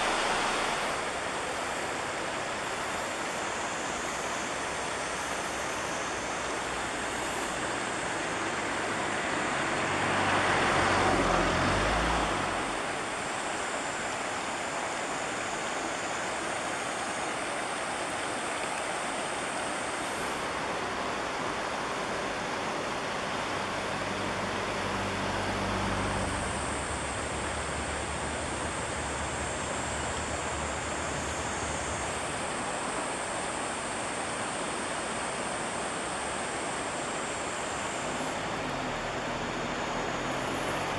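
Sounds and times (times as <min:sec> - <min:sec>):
river rushing over stones: 0:00.0 - 0:40.9
vehicle passing: 0:09.1 - 0:13.0, 0:24.2 - 0:31.8.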